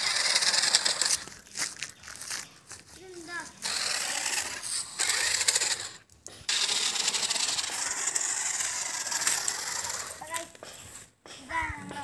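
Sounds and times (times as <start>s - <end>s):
toy car electric motor whirring: 0.0s - 1.4s, 3.2s - 10.6s
tyres crunching on rough ground: 0.0s - 6.6s.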